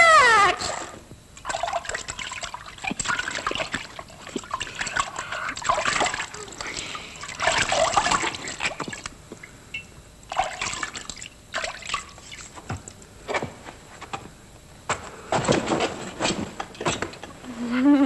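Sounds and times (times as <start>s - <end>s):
water splashing and sloshing: 1.4s - 9.5s, 10.3s - 13.5s.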